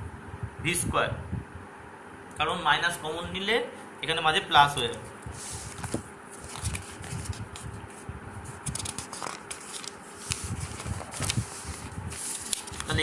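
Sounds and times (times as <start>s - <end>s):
paper pages rustling: 4.9s - 13.0s.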